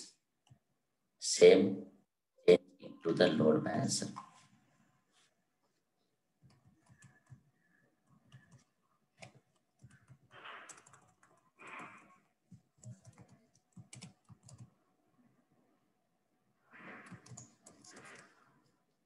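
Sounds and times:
typing on computer keyboard: 6.5s - 7.5s, 8.1s - 14.8s, 16.9s - 18.3s.

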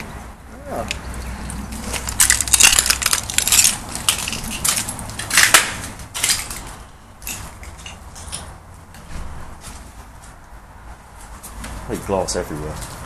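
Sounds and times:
footsteps crunching on broken glass: 1.7s - 8.0s.

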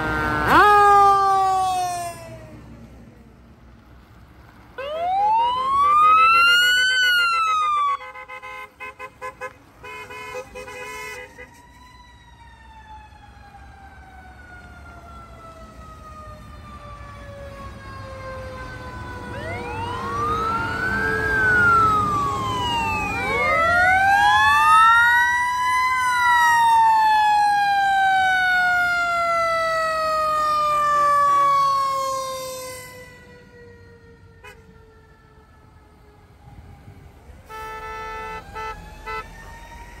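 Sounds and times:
short rapid siren blasts: 0.0s - 2.6s, 4.8s - 8.6s, 17.7s - 35.3s, 37.4s - 40.0s
fire truck sirens wailing: 0.0s - 3.3s, 4.5s - 8.5s, 10.4s - 40.0s.

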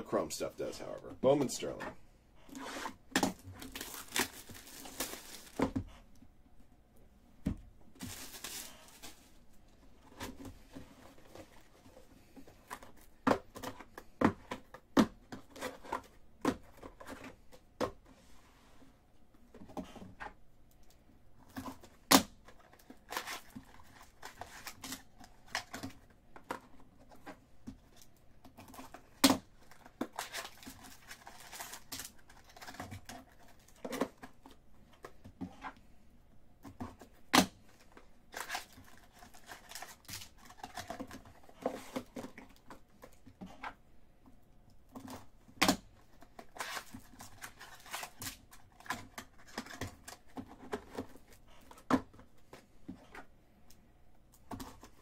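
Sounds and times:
packaging tearing: 2.5s - 5.6s, 8.0s - 9.2s
packaging crinkling: 3.3s - 5.8s, 8.0s - 9.4s.

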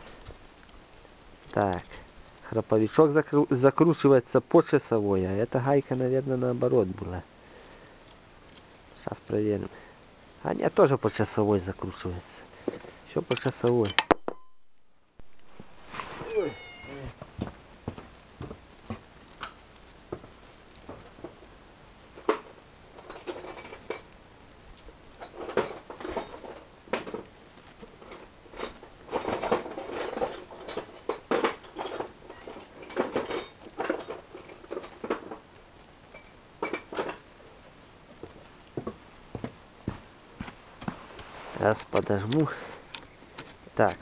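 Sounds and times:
small metal tools clinking: 25.2s - 26.7s, 28.0s - 35.4s.

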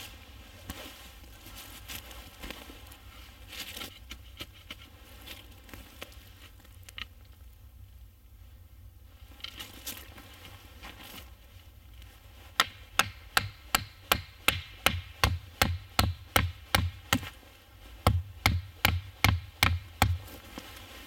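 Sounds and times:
hammer driving wooden stakes: 12.5s - 17.4s, 18.0s - 20.4s.

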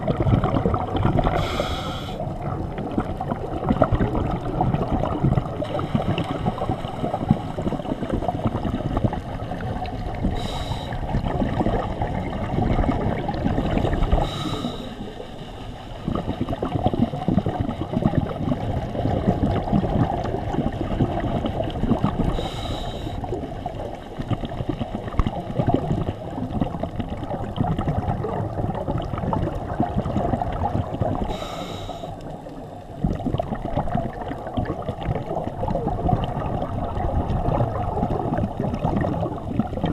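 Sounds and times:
exhaled air bubbling underwater: 0.0s - 39.9s
regulator inhalation hiss: 1.4s - 2.2s, 10.4s - 11.0s, 14.2s - 15.2s, 22.4s - 23.2s, 31.3s - 32.3s.

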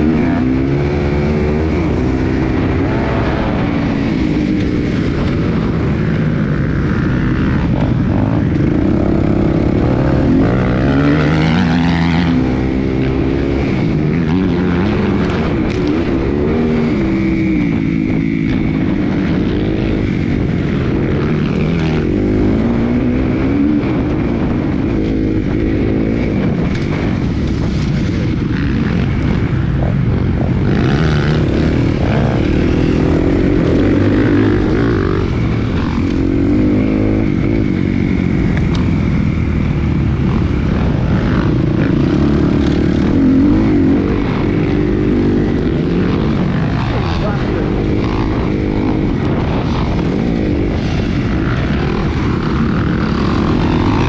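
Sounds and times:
motorbike engine revving: 0.0s - 54.0s.

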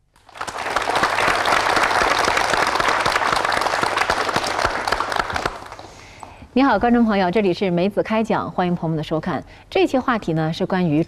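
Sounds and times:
audience applauding: 0.2s - 6.0s.

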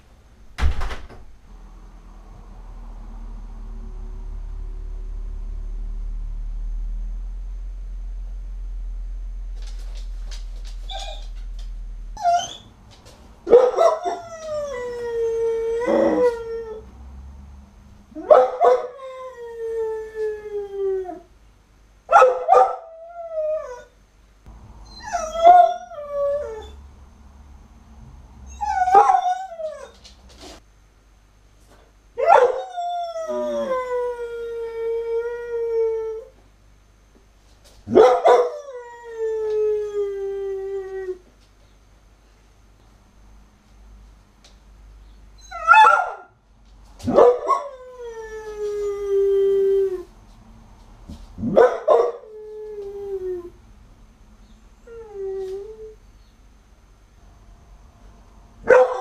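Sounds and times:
dog howling: 13.5s - 16.9s, 32.2s - 36.3s.

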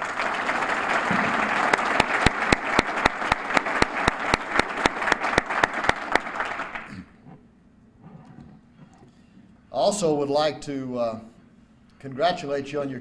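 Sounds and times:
close hand claps: 0.0s - 6.9s
crowd applauding: 0.0s - 6.9s.

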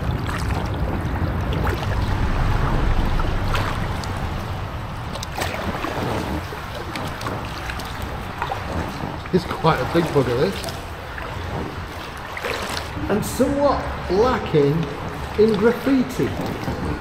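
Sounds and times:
paddle splashing in water: 0.0s - 13.0s
low rumble: 0.8s - 7.7s.

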